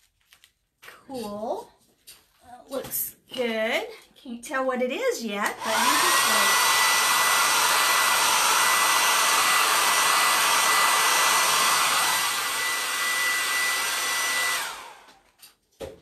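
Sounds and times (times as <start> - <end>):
hot-air dryer whining: 5.4 - 15.3.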